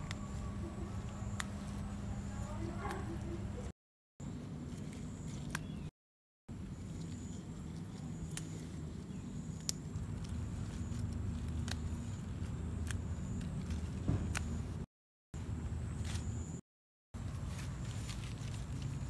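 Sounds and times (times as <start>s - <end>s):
plant stems snapping: 1.2s - 1.8s, 4.9s - 5.9s, 8.2s - 8.7s, 9.5s - 14.7s.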